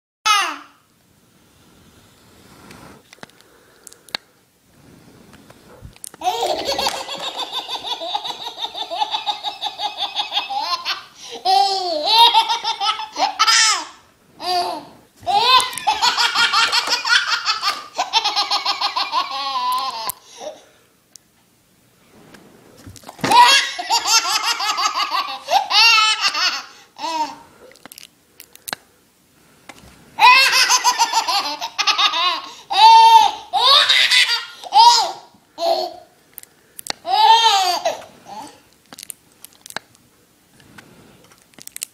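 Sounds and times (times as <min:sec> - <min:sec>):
baby squealing laughs: 0:06.2 - 0:20.5, 0:23.2 - 0:27.4, 0:30.2 - 0:36.0
baby laughing: 0:06.2 - 0:20.6, 0:23.2 - 0:27.4, 0:30.2 - 0:36.1, 0:37.0 - 0:38.6.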